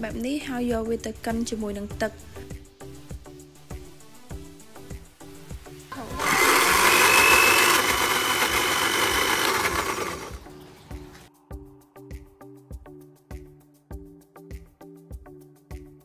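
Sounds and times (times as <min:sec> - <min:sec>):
background music with steady beat: 0:00.0 - 0:06.3, 0:06.9 - 0:16.0
blender running: 0:05.9 - 0:10.4.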